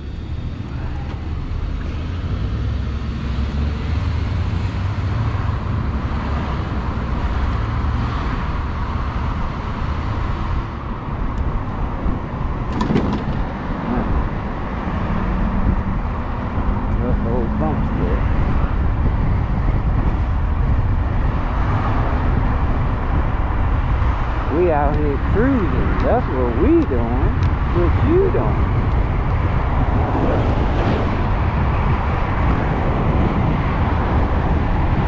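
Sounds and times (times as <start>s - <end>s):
passing traffic: 0.0s - 35.0s
road noise: 0.0s - 35.0s
wind rushing over microphone: 0.0s - 35.0s.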